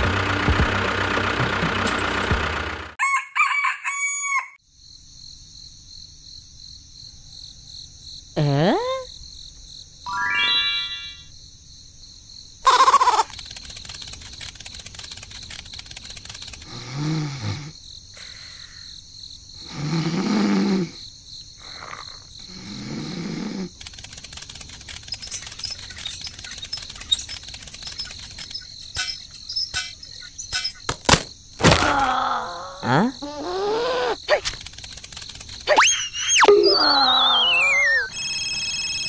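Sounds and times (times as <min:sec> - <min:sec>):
rapid clicks and ticks: 0:13.3 - 0:16.8, 0:23.8 - 0:30.9, 0:34.4 - 0:35.7
cartoon snoring: 0:16.6 - 0:17.8, 0:19.6 - 0:21.0, 0:21.6 - 0:23.8, 0:31.9 - 0:34.3
loud falling tone: 0:35.8 - 0:39.0.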